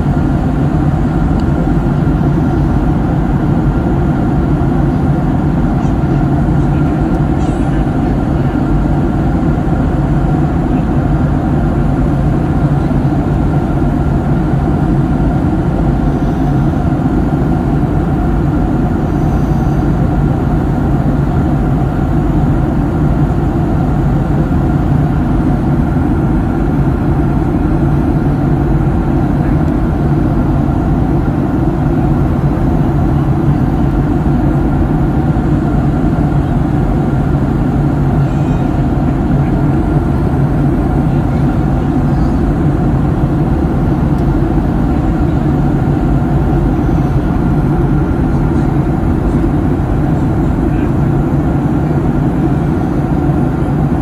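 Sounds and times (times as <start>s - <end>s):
airliner cabin engine rumble: 0.0s - 54.0s.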